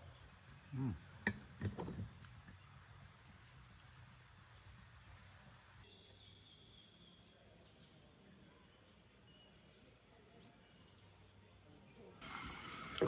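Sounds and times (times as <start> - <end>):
forest ambience: 0.0 - 13.0
man's voice murmuring: 0.7 - 1.0.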